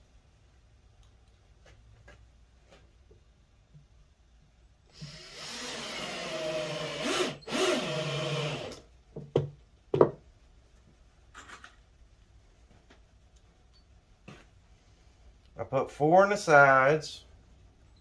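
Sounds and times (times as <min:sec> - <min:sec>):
cordless drill driving screw: 0:04.9 - 0:08.8.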